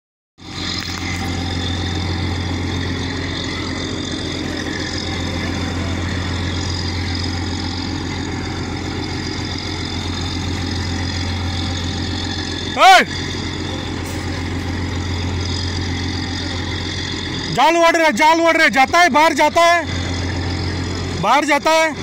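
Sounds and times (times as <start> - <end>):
boat engine droning: 0.4 - 22.0.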